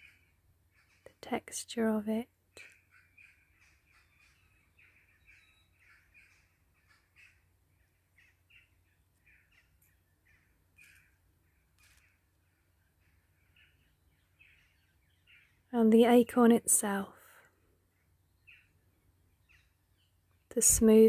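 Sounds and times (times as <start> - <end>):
faint short bird calls: 0.0 - 1.2, 2.5 - 15.6.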